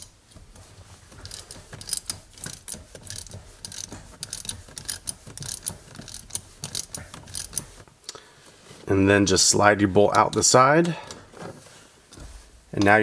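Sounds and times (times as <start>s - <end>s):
ratchet clicking: 1.1s - 7.8s.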